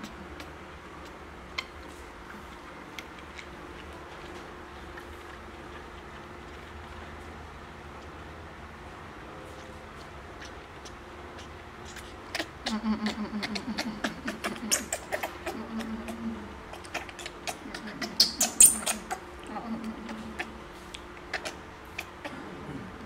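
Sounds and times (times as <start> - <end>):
monkey sucking milk bottle: 10.4 - 22.3.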